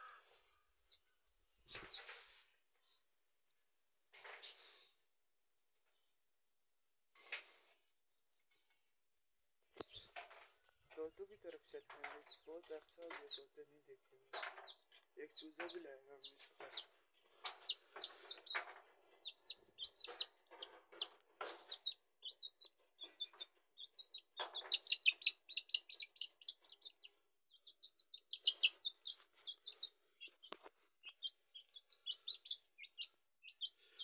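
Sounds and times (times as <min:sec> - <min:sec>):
chick peeping: 0:01.7 - 0:02.2, 0:10.9 - 0:34.0.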